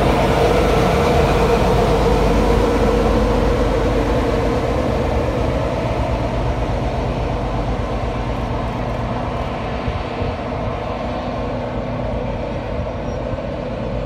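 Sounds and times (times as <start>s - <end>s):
train diesel engine running: 0.0s - 14.0s.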